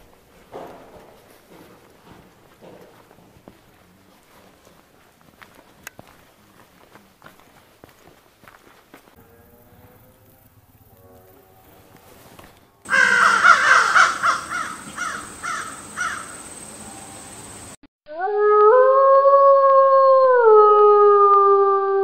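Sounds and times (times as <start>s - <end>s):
long howl-like tone: 9.2s - 12.8s, 16.7s - 17.7s.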